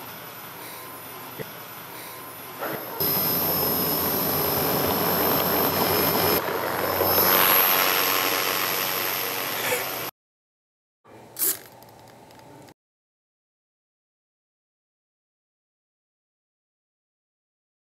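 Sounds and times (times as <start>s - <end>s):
robot propeller motor whirring: 3.0s - 10.1s.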